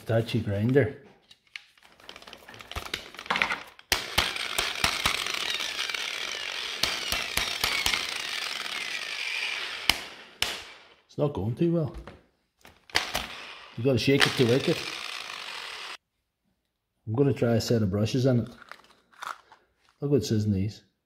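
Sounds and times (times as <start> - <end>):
angle grinder motor cutting in and out: 2.0 - 11.0, 12.9 - 16.0.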